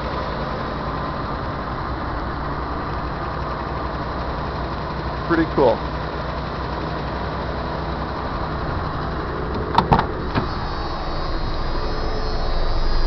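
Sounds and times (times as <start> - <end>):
car engine idling: 0.0 - 13.0
car door knocks: 9.6 - 10.5.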